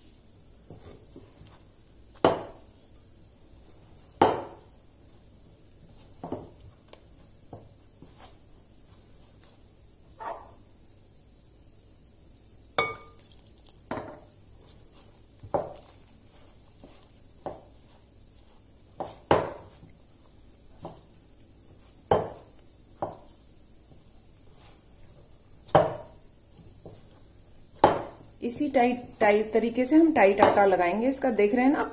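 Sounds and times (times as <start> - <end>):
dough kneaded by hand: 0.0 - 10.8, 12.7 - 31.9
glass bowl knocking and clinking: 12.8 - 13.3, 13.9 - 14.2.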